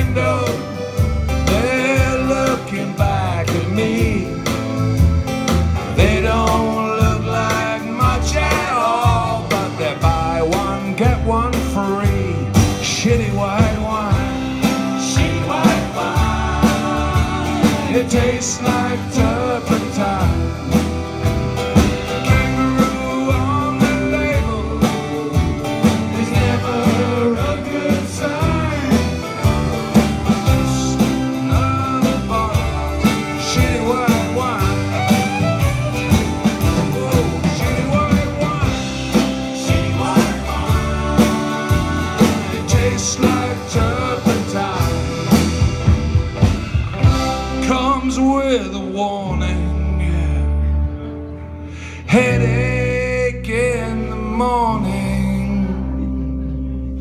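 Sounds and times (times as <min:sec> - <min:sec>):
banjo: 0:00.0 - 0:51.4
accordion: 0:00.0 - 0:53.2
drums: 0:00.0 - 0:56.1
acoustic guitar: 0:00.0 - 0:57.0
fiddle: 0:13.8 - 0:47.6.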